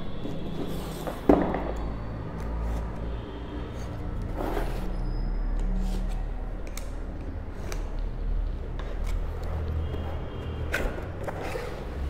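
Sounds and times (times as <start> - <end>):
handling clicks and scrapes: 8.7 - 12.0.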